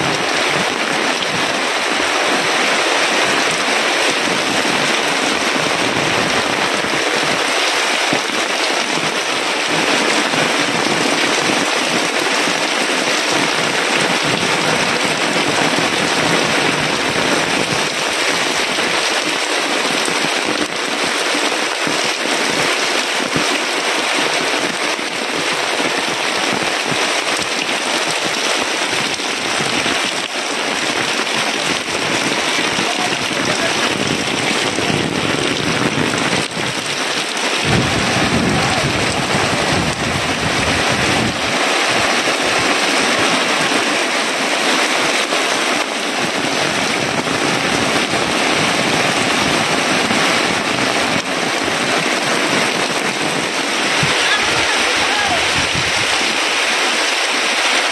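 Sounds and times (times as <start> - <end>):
heavy rain hissing: 0.0 - 57.9
water pouring off roof: 0.0 - 57.9
low rumble: 37.6 - 41.3.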